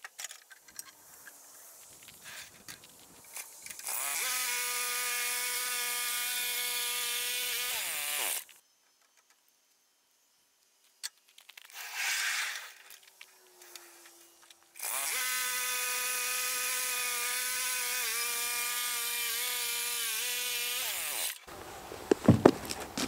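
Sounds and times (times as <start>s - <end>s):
lumber knocking: 22.0s - 23.0s.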